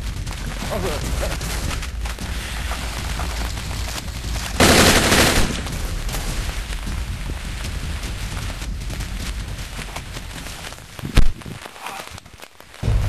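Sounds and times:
low background rumble: 0.0s - 11.7s
burst of gunfire: 4.1s - 6.9s.

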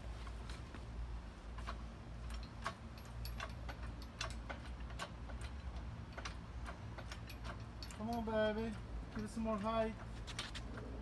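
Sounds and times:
low steady rumble: 0.0s - 11.0s
light metallic clicks and clinks: 1.6s - 10.6s.

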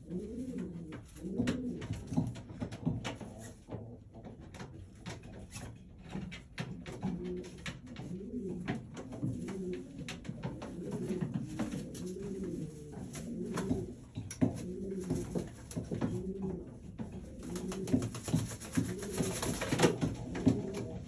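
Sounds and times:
pigeon cooing: 0.0s - 5.2s, 6.6s - 21.0s
wings flapping: 17.4s - 21.0s.

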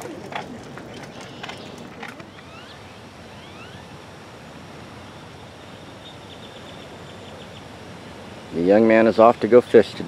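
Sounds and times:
outdoor background noise: 0.0s - 10.0s
birds whistling: 0.9s - 3.9s.

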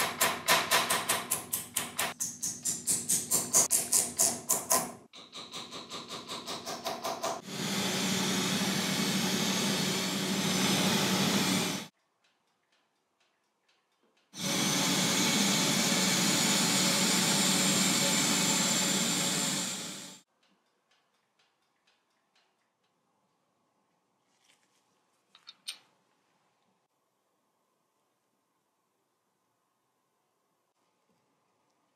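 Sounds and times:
spray gun hissing: 14.4s - 20.2s.

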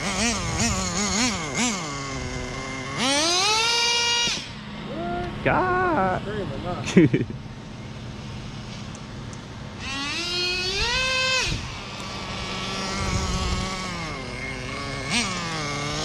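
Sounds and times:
model car engine revving: 0.0s - 5.4s, 9.8s - 16.0s.

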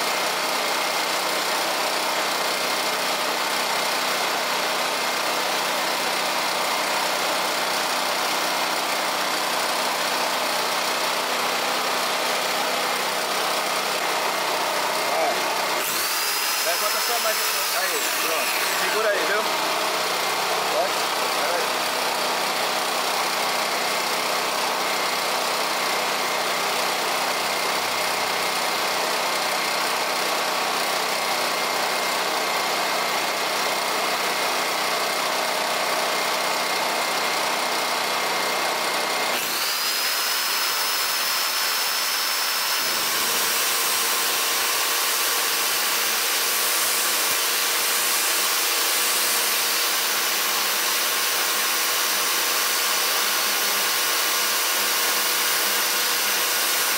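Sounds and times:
generator running: 0.0s - 56.9s
electric motors whining: 13.3s - 21.8s, 39.3s - 54.2s.

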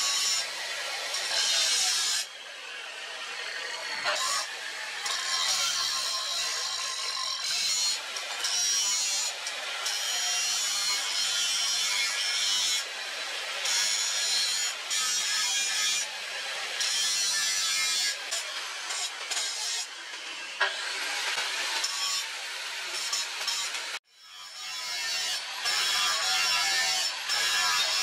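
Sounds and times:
angle grinder cutting steel: 0.0s - 28.0s.

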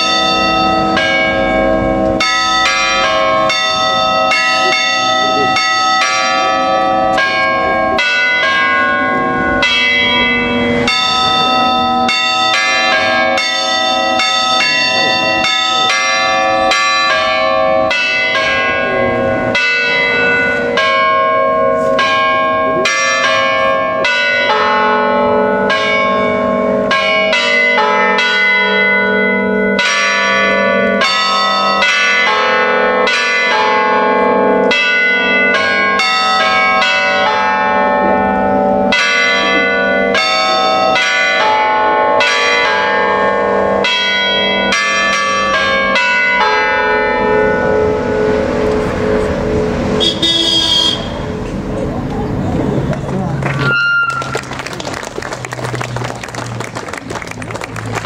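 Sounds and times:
church bells ringing: 0.0s - 58.0s.

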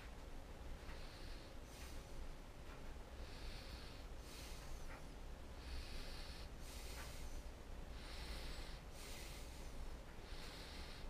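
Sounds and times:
steady low hum: 0.0s - 11.0s
person breathing through nose: 3.2s - 11.0s.

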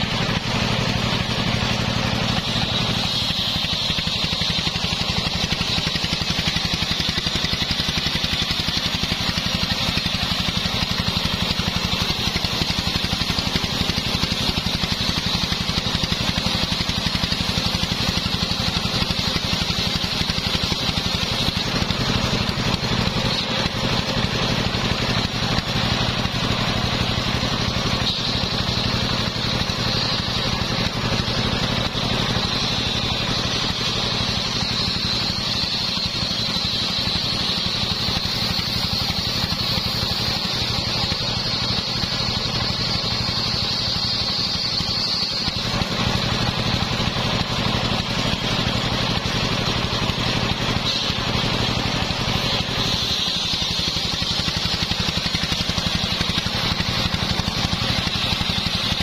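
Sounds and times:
engine running steadily: 0.0s - 59.0s
saw blade cutting logs: 0.0s - 59.0s.

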